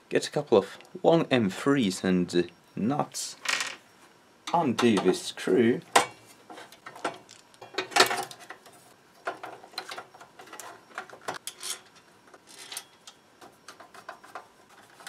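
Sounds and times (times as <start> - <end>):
clicks and metallic knocks: 4.4 - 5.2, 5.9 - 15.0.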